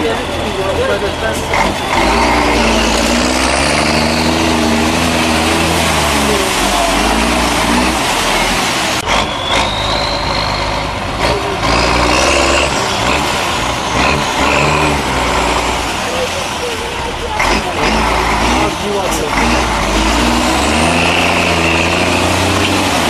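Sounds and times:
diesel engine revving hard: 0.0 - 23.0.

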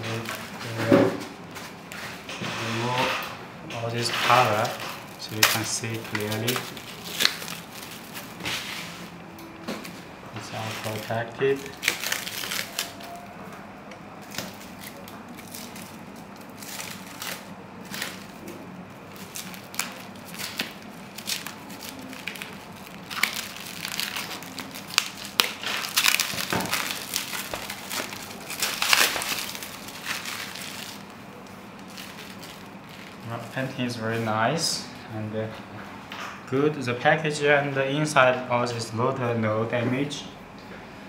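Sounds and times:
plastic wrap crinkling: 0.0 - 0.8, 3.9 - 34.2.

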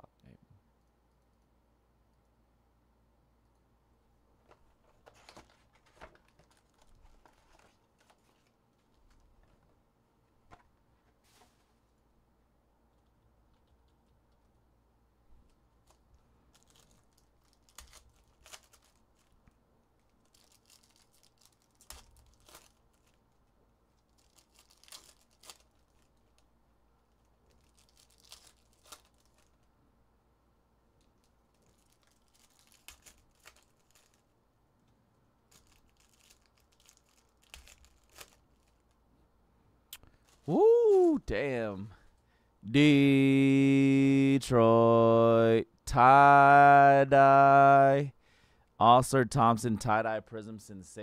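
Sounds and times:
foil wrappers rustling: 4.5 - 9.2, 15.8 - 19.4, 20.1 - 26.4, 27.0 - 29.7, 31.2 - 34.3, 35.5 - 39.0.

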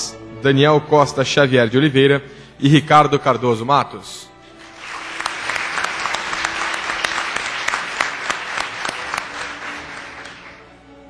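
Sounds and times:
audience applauding: 4.5 - 10.9.

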